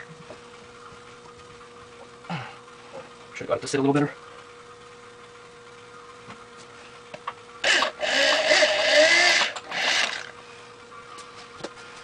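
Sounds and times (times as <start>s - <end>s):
faint steady hum: 0.0s - 12.0s
electric drill boring: 7.6s - 10.3s.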